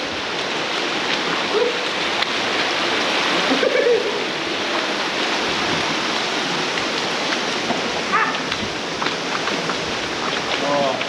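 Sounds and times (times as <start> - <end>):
creek water rushing: 0.0 - 11.0
splashing footsteps in water: 5.7 - 11.0.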